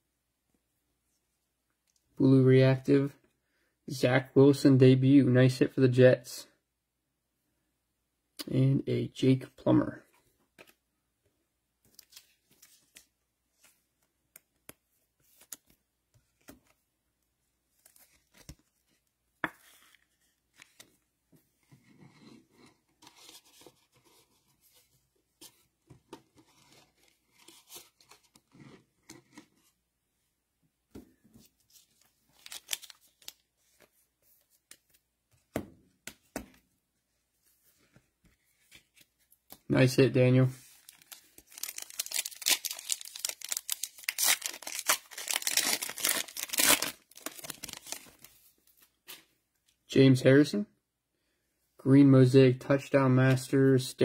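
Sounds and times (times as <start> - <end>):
plastic wrappers crinkling and tearing: 32.3 - 33.4, 40.7 - 48.3.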